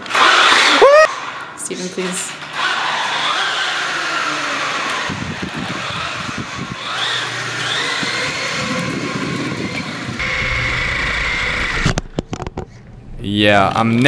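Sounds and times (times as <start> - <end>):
toy car motor whining: 0.0 - 1.2, 2.5 - 12.0.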